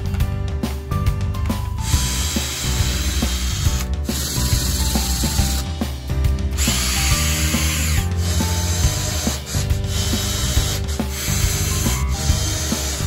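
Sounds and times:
background music: 0.0 - 13.0
cordless drill boring into wood: 1.9 - 5.6, 6.6 - 13.0.

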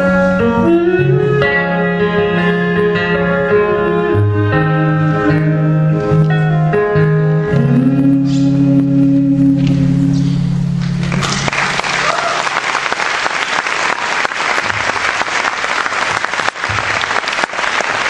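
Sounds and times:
audience applause: 11.0 - 18.0.

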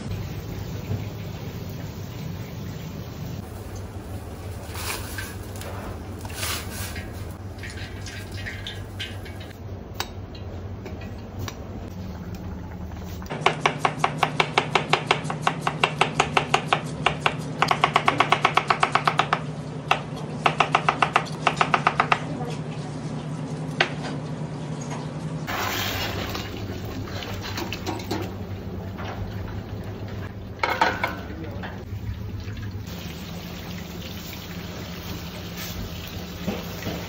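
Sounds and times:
pot boiling on gas range: 0.0 - 13.9, 22.6 - 37.0.

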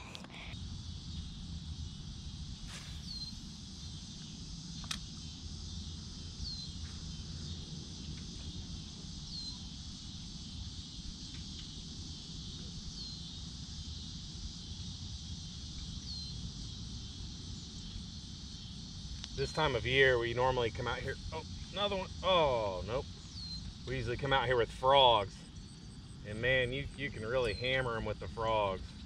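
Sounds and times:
high-pitched insect chorus: 0.0 - 29.0
short chirp: 2.7 - 3.5.

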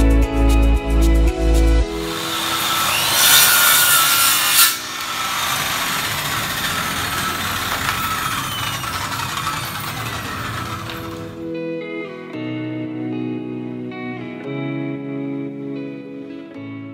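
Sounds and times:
circular saw cutting wood: 2.0 - 11.4.

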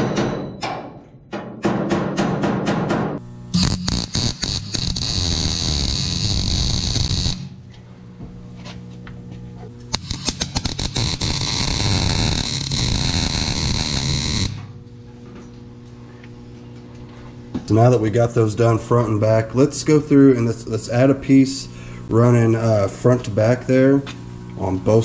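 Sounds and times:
welding arc crackling and sizzling: 3.2 - 7.6, 9.9 - 14.8
low steady hum: 3.2 - 25.0.

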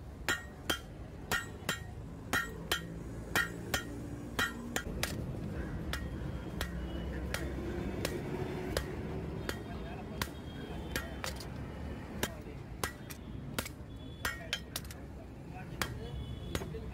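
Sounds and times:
hammer striking hot steel on anvil: 0.2 - 5.2, 12.2 - 15.0.

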